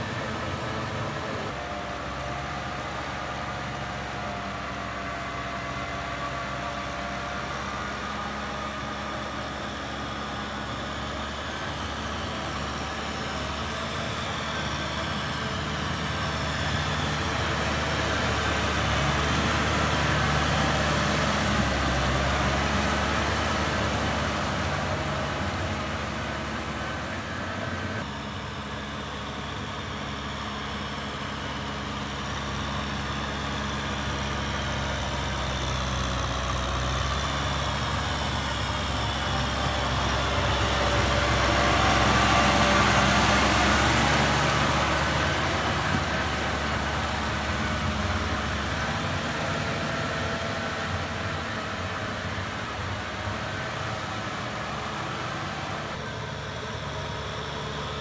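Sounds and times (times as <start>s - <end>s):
tiller churning mud and water: 0.0s - 58.0s
tractor diesel engine: 0.0s - 58.0s.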